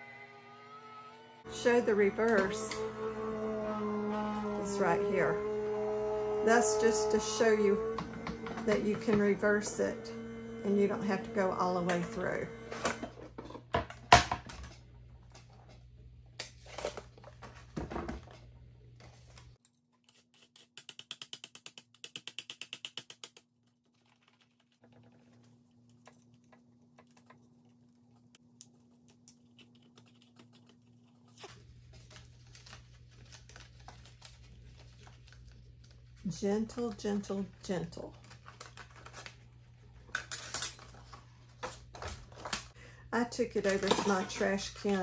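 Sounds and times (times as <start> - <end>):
paper rustling: 28.7 - 36.2, 38.1 - 40.1.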